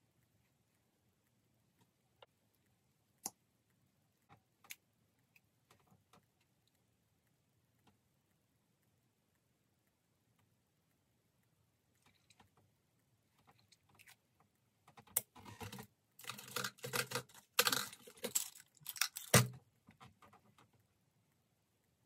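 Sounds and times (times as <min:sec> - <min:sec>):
small objects rustling and rattling: 0:15.4 - 0:19.6.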